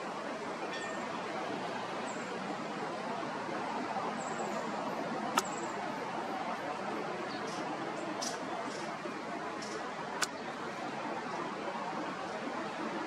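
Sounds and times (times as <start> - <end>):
hiss-like outdoor hum: 0.0 - 13.0
sharp click: 5.4 - 5.6.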